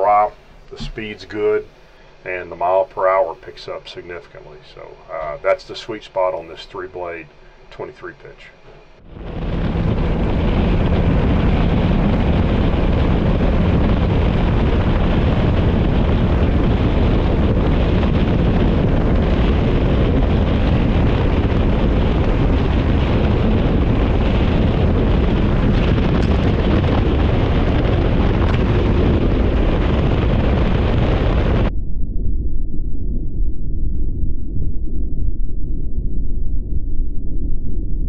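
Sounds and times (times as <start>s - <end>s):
wind rushing on microphone: 9.0s - 32.3s
outboard engine at high speed: 9.1s - 31.7s.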